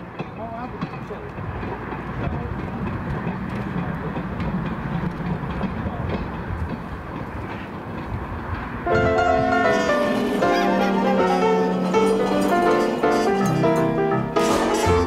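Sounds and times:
faint clicks of wheels: 0.0 - 8.8
wagon wheels rumbling on rails: 0.0 - 15.0
music: 8.9 - 15.0.

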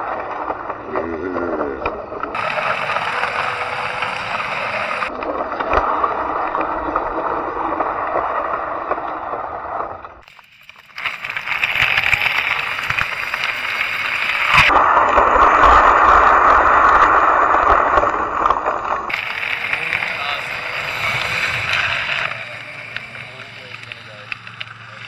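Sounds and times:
road noise: 0.0 - 6.1, 10.0 - 15.2, 18.0 - 25.0
wind rushing over microphone: 11.7 - 25.0.

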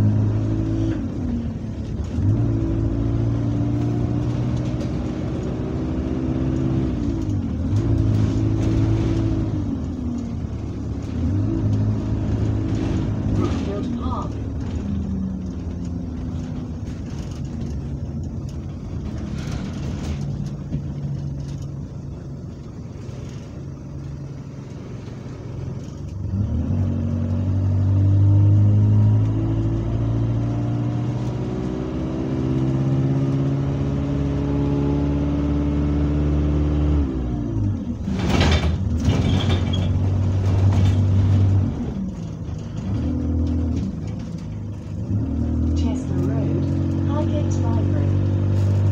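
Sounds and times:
bus diesel engine: 0.0 - 48.9.

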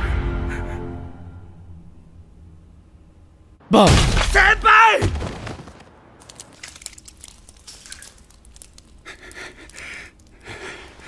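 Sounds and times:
faint clicks and crackles: 6.2 - 11.0
heavy breathing: 8.9 - 11.0.

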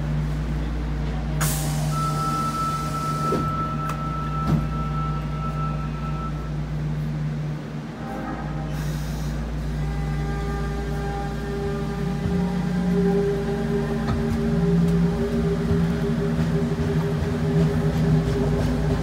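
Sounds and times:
low subway car hum: 0.0 - 19.0
train motor tones: 1.0 - 7.1, 7.8 - 19.0
air hiss of doors: 1.4 - 3.6, 8.7 - 9.6
steady high tone: 1.9 - 6.7, 7.7 - 19.0.

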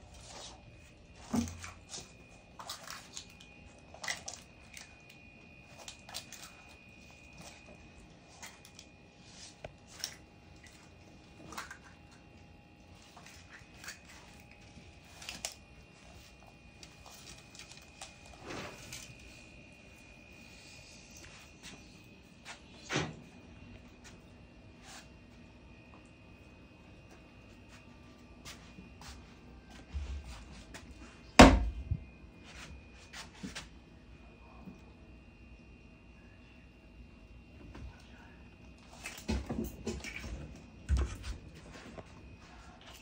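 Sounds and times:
faint high whine: 0.0 - 43.0
lizard rustling in wood chips: 8.3 - 10.0.

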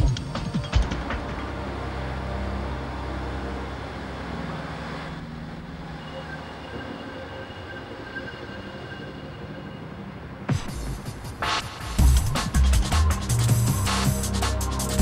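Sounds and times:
diesel train engines droning: 0.0 - 15.0
diesel train moving away: 0.5 - 15.0
faint high-pitched whines: 1.0 - 11.9.

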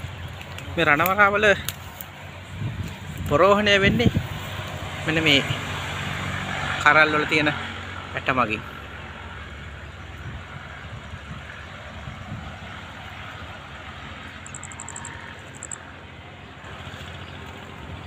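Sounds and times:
high pulsing trill: 14.4 - 15.8.

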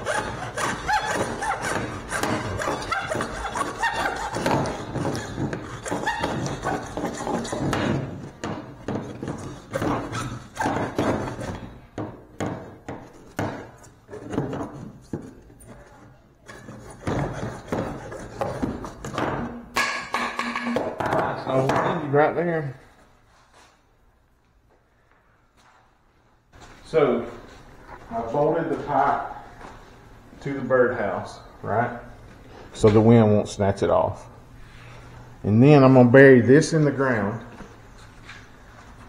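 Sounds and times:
hacksaw cutting plastic pipe: 0.0 - 15.3, 16.4 - 20.9
pipe thuds: 18.6 - 22.0.

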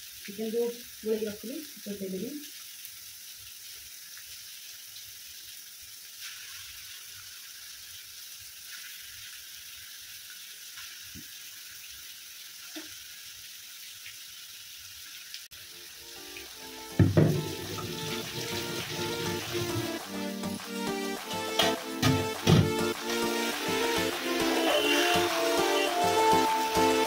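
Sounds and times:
masala sizzling in a pan: 0.0 - 27.0
music: 15.9 - 27.0
soft knocks: 17.0 - 18.0.

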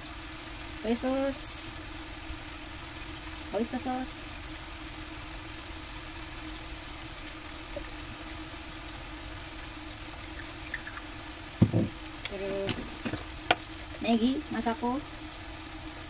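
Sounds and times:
low mechanical hum: 0.0 - 16.0
loud thump: 11.6 - 12.0.

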